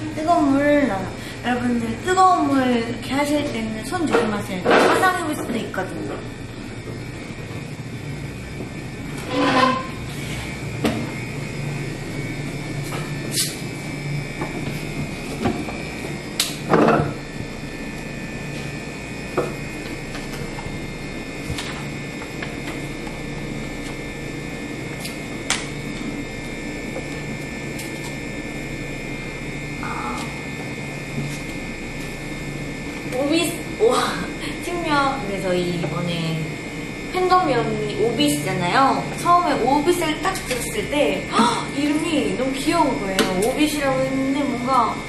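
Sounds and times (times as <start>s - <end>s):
machine hum with high whine: 0.0s - 45.0s.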